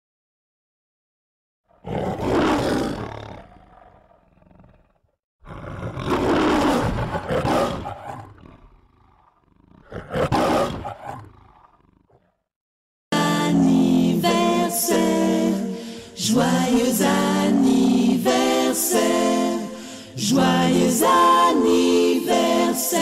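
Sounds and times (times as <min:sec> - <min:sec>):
lion roaring: 0:01.7 - 0:12.4.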